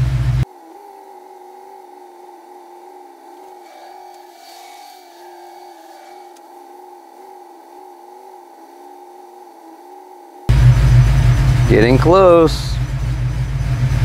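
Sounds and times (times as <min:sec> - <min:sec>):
car engine idling with fans: 0:00.0 - 0:00.5, 0:10.5 - 0:14.0.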